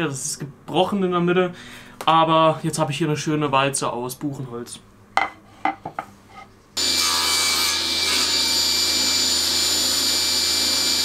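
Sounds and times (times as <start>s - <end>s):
table saw running: 6.8s - 11.0s.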